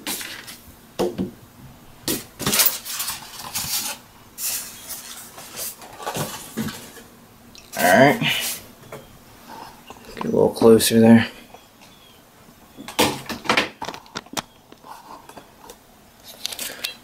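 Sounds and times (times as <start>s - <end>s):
polystyrene foam scraping and rubbing: 2.7s - 7.0s.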